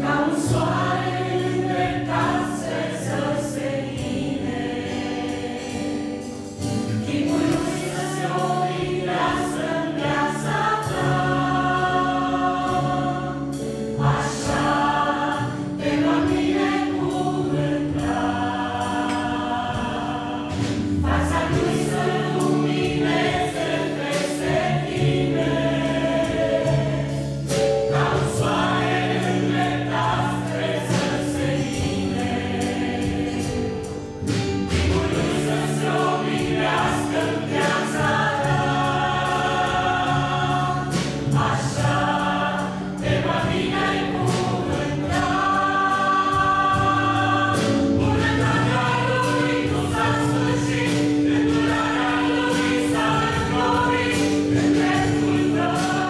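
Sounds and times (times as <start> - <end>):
choir singing in harmony: 0.0 - 56.0
guitar accompaniment: 0.0 - 56.0.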